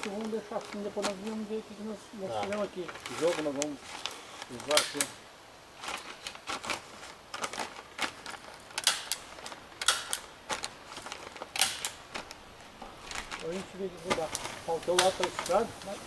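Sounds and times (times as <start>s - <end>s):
wooden poles knocking and clicking: 7.4s - 15.6s.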